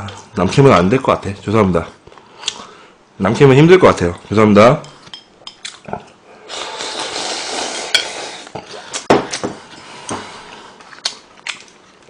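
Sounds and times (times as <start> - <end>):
slurping noodle soup: 5.9 - 9.1.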